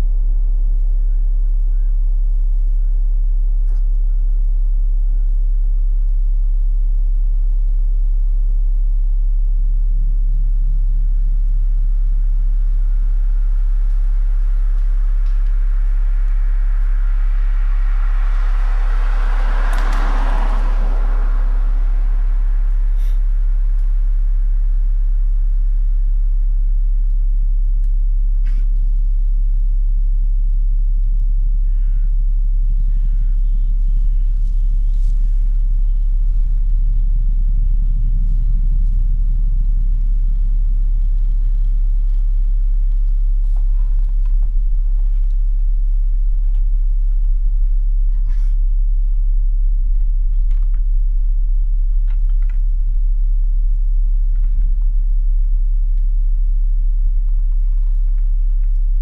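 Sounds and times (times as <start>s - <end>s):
very low hum: 0.0s - 59.0s
rushing noise: 15.4s - 24.6s.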